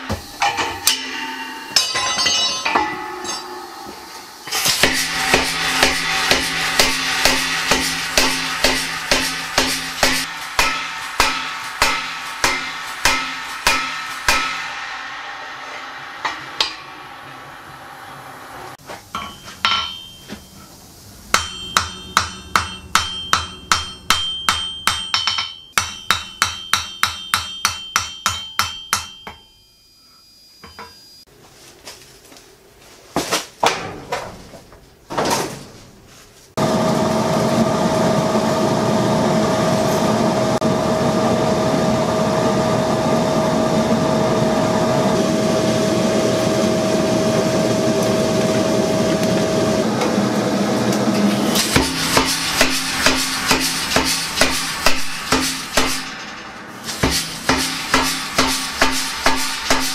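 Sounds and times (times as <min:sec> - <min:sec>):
anvil ringing: 0:00.0 - 0:20.7, 0:21.3 - 0:30.0, 0:51.4 - 0:59.9
hammer blows on anvil: 0:00.0 - 0:20.7, 0:21.3 - 0:29.7, 0:51.2 - 0:59.9
forge blower humming: 0:00.0 - 0:24.2, 0:36.6 - 0:59.9.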